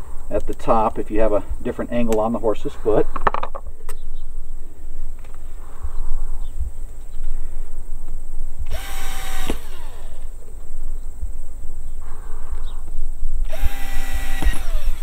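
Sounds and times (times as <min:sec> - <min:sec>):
cordless drill whining: 0:08.7 - 0:10.3, 0:13.4 - 0:15.0.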